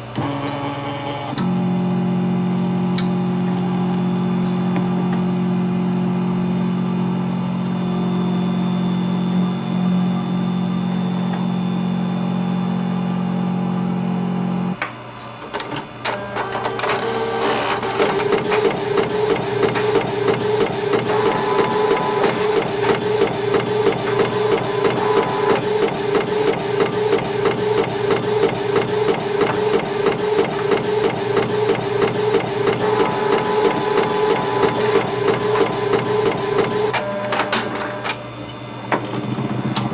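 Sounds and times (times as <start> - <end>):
machine hum: 0.0 - 39.9
printer mechanical chatter: 15.5 - 38.2.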